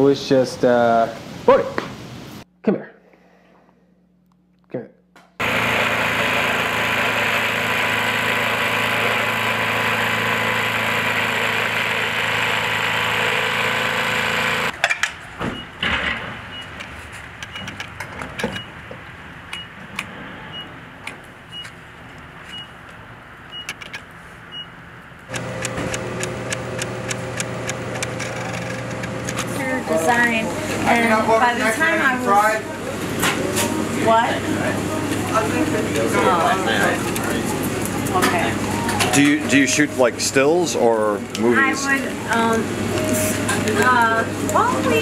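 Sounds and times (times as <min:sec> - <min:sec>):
snowblower engine running: 0:05.4 - 0:14.7, 0:25.3 - 0:31.4, 0:35.1 - 0:45.0
scattered clicks: 0:25.3 - 0:29.5.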